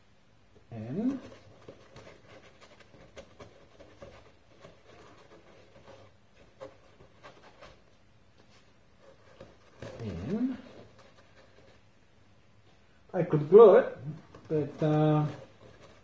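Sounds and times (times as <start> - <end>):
hands rubbing foam: 14.0 - 16.0.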